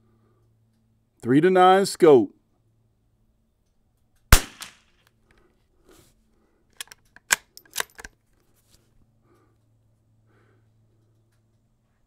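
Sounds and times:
rifle shot with echo: 4.3 - 4.9
rifle bolt metallic clicks: 6.8 - 8.2.

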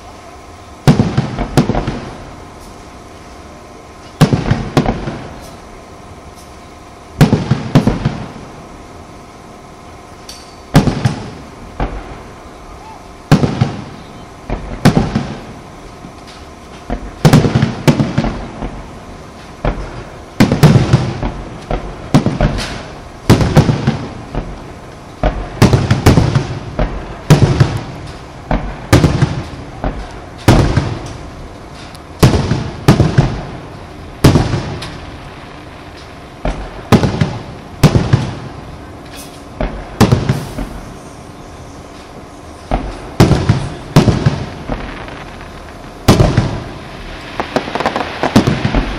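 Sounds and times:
fireworks shells bursting: 10.1 - 48.9.

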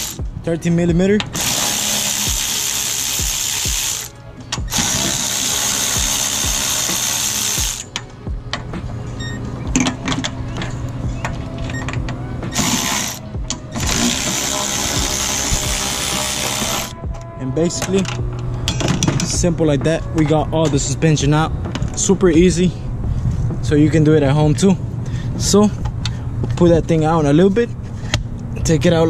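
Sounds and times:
electric ratchet running: 0.0 - 0.2, 1.4 - 4.1, 4.7 - 7.9, 12.6 - 13.2, 13.8 - 17.0
ratchet clicks: 1.2 - 8.1.

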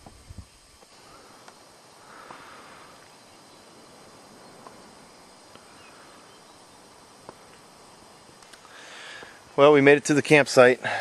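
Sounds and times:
faint clicks: 0.8 - 1.6, 8.3 - 9.4.

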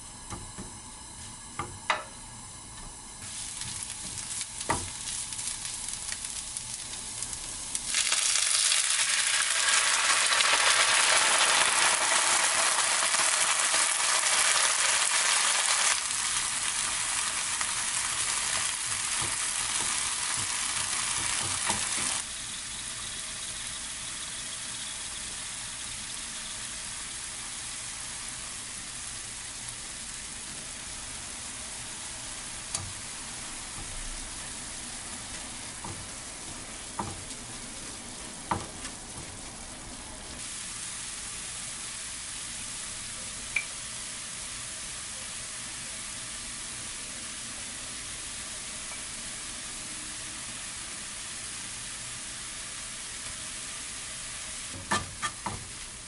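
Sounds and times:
greens sizzling in frying pan: 3.2 - 56.0
stock sizzling in hot pan: 3.2 - 56.0
spatula knocking on pan: 18.8 - 22.2, 35.8 - 37.5, 38.5 - 39.4, 54.8 - 55.8.

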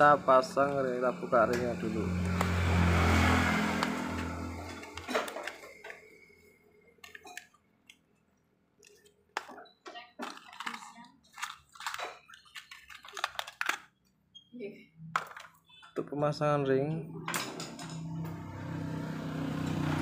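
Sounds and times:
passing vehicle engine: 0.0 - 5.1, 17.9 - 20.0.

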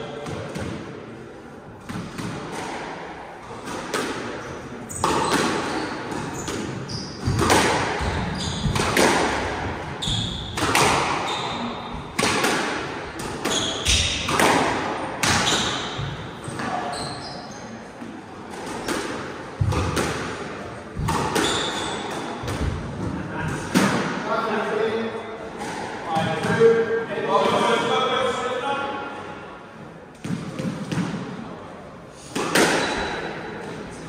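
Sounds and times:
squash ball smacking off rackets: 32.3 - 33.2.

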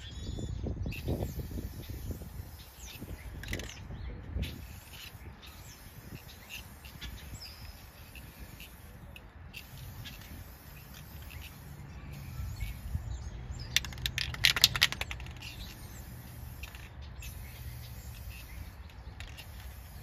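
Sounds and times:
spray can mixing ball rattling: 1.0 - 8.9, 9.6 - 20.0
aerosol spray can hissing: 4.4 - 9.0, 9.6 - 20.0.

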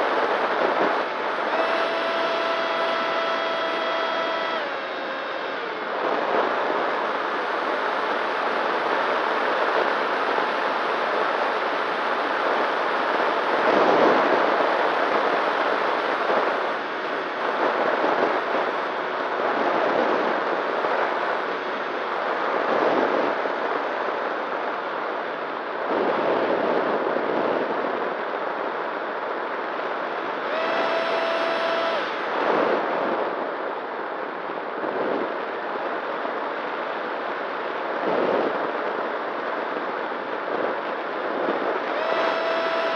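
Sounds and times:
electric motor and propeller hum: 0.0 - 23.2, 30.1 - 33.4, 41.4 - 42.9
wind rushing over microphone: 0.0 - 42.9.

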